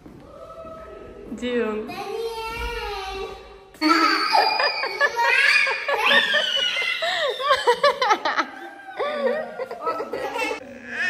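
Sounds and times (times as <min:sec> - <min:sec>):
children squealing and laughing: 0:03.8 - 0:11.0.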